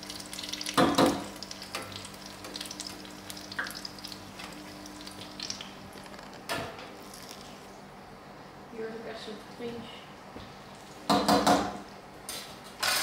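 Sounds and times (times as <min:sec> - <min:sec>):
dough sizzling in hot oil: 0:00.0 - 0:07.7.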